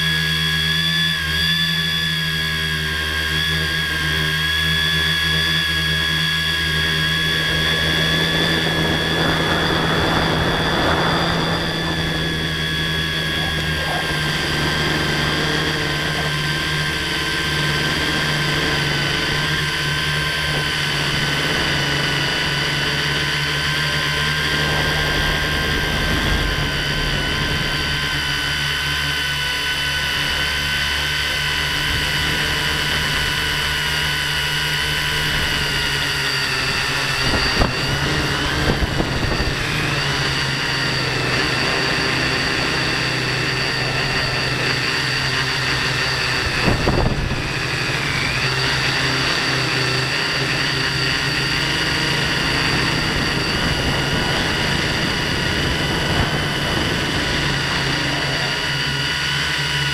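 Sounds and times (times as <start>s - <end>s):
drone motors whining: 0.0s - 59.9s
wind rushing: 8.2s - 13.1s.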